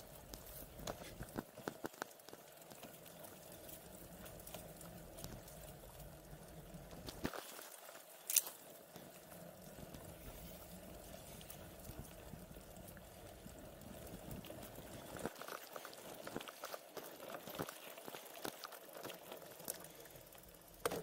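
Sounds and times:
bike tyres crunching on gravel: 0:00.0 - 0:21.0
bike rattling and knocking: 0:20.7 - 0:21.0.

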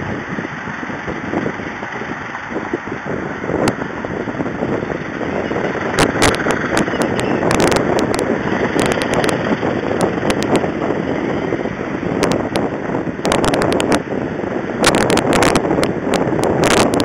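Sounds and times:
traffic rumble: 0:00.0 - 0:17.0
sharp clicks: 0:05.9 - 0:10.6.

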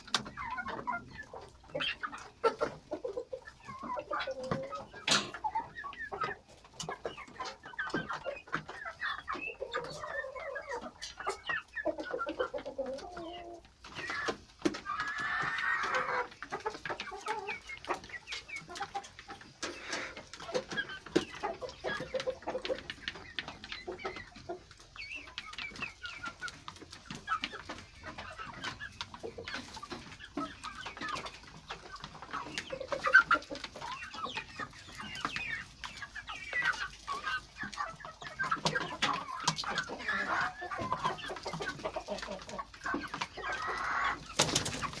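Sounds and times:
beaks pecking at plastic trays: 0:00.0 - 0:45.0
chickens clucking: 0:00.0 - 0:45.0.

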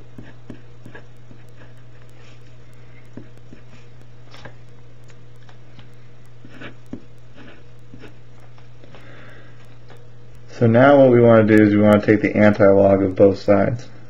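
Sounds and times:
pen scratching on paper: 0:00.0 - 0:04.4, 0:06.4 - 0:08.2
low electrical hum: 0:00.0 - 0:14.0.

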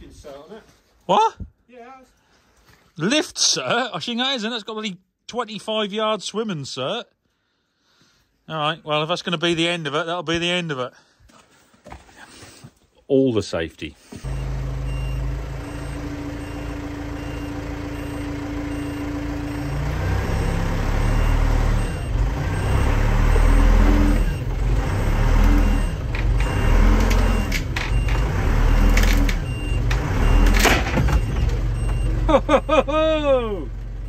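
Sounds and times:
steady warning beep: 0:14.2 - 0:32.9
tractor engine revving under load: 0:14.2 - 0:34.0.

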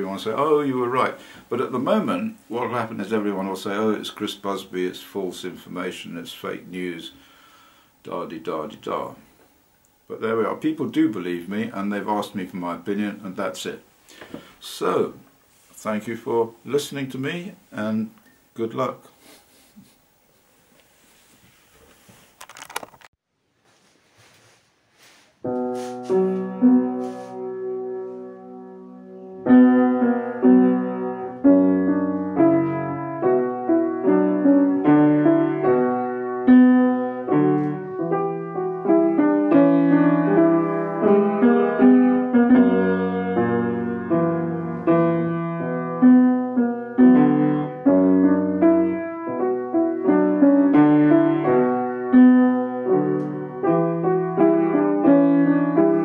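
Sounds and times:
solo piano music: 0:25.4 - 0:56.0.

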